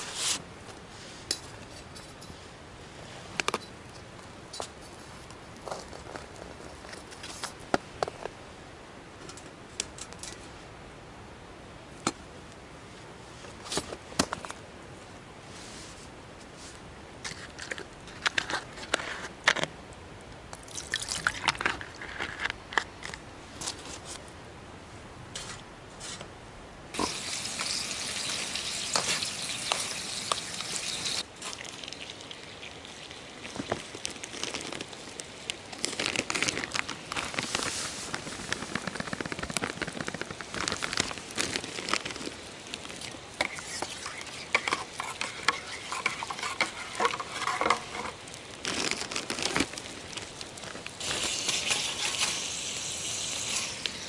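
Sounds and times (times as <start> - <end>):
fire crackling: 26.9 - 54.0
steady hissing: 27.0 - 31.3, 42.0 - 48.7, 49.7 - 54.0
spatula scraping metal pot: 43.4 - 48.2.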